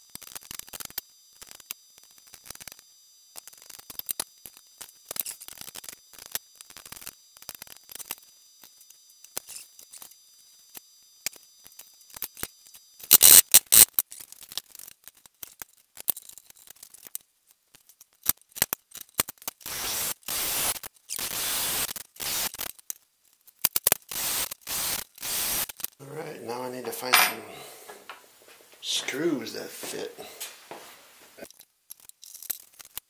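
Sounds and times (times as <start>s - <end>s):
tin snips cutting sheet metal: 13.1s - 13.9s.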